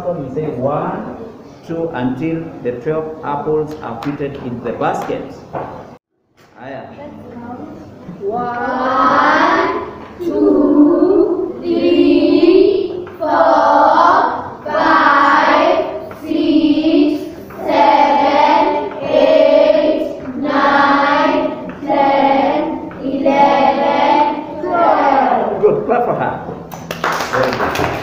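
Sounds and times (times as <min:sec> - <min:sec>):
children counting aloud in unison: 0:08.2 - 0:25.6.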